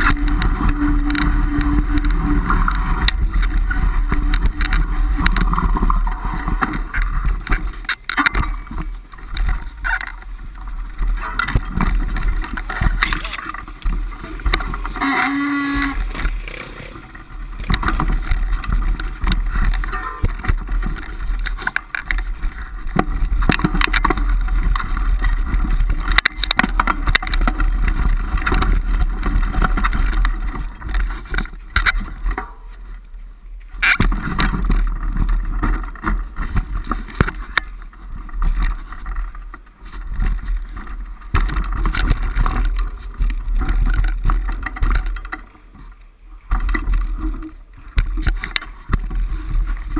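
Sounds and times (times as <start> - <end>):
motorcycle engine revving: 14.3 - 18.4.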